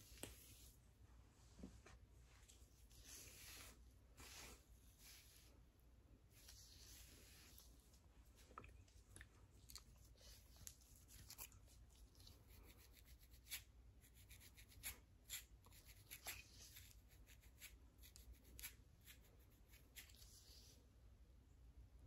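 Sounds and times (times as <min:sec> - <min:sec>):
comb scratching scalp: 0:12.2 - 0:20.8.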